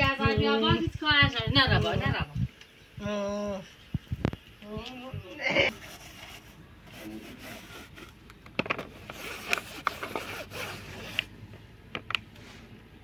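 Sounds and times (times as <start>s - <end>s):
plastic clicks and knocks: 8.3s - 8.9s.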